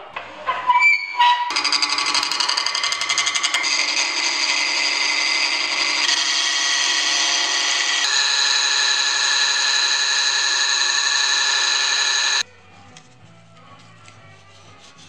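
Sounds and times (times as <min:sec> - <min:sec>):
lathe tool cutting wood: 0:01.5 - 0:12.4.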